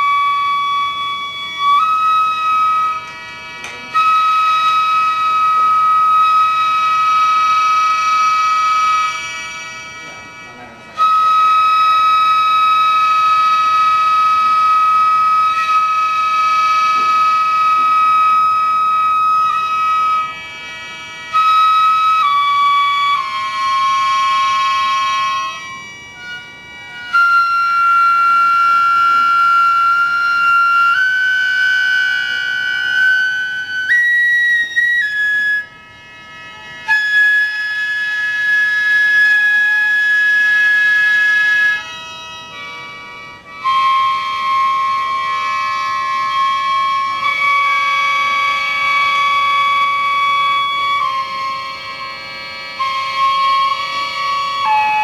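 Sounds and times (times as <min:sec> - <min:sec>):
wind instrument holding long notes: 0:00.0 - 0:55.0.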